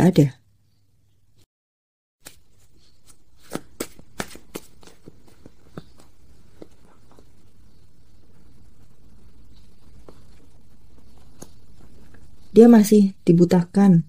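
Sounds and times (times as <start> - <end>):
cards being shuffled: 2.2 - 7.3, 9.8 - 12.2.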